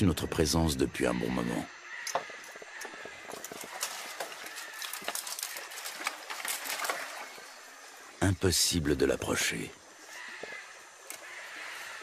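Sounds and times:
light rustling: 0:02.2 - 0:08.0
faint steady hiss: 0:02.5 - 0:12.0.

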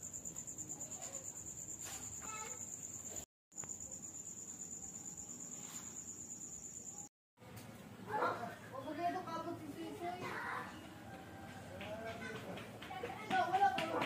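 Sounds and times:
cricket chirping: 0:00.0 - 0:07.1.

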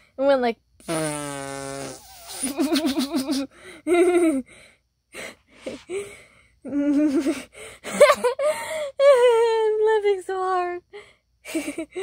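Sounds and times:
person laughing hard: 0:02.4 - 0:04.4, 0:06.6 - 0:08.7.

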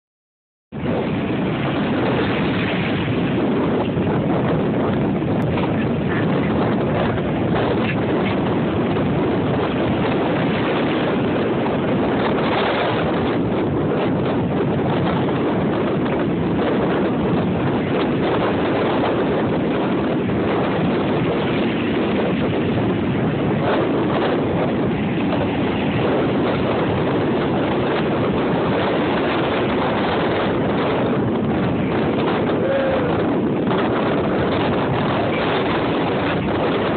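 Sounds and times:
wind buffeting microphone: 0:00.7 - 0:36.9
ocean surf breaking: 0:00.8 - 0:36.9.

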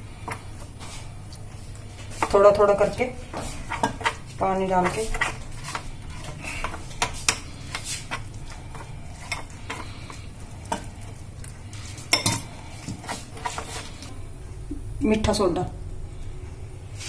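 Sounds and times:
fork stirring batter in glass bowl: 0:01.6 - 0:14.1.

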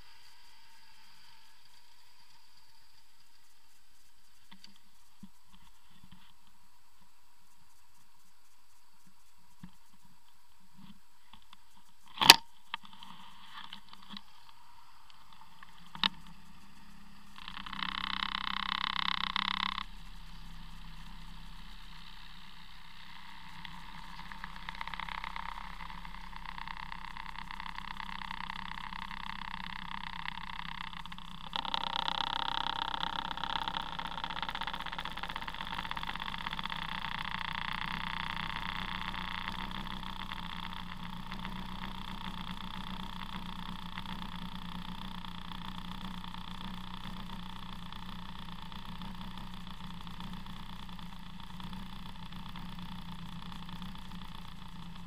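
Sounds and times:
snowmobile engine idling: 0:00.0 - 0:55.0
louder rough higher engine sound: 0:09.0 - 0:55.0.

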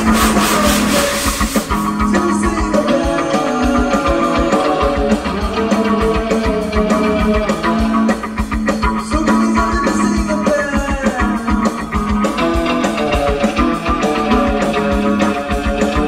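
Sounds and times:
steady beat: 0:00.0 - 0:02.5.

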